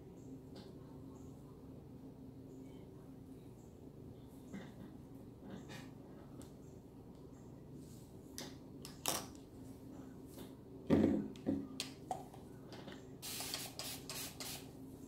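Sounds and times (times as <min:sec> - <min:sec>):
short hiss: 0:13.2 - 0:14.6.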